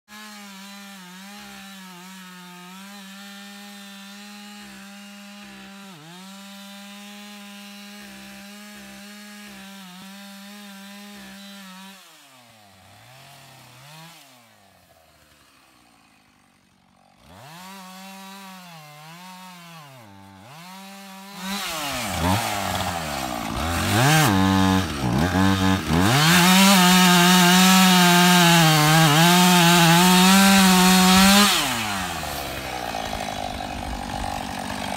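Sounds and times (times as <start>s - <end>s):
chainsaw engine revving: 0.1s - 34.9s
rasp of wood being cut: 17.4s - 34.9s.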